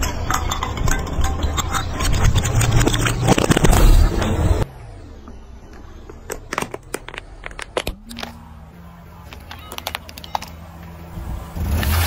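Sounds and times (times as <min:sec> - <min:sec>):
plastic toy cracking under tyre: 0:06.3 - 0:08.4, 0:09.3 - 0:10.6.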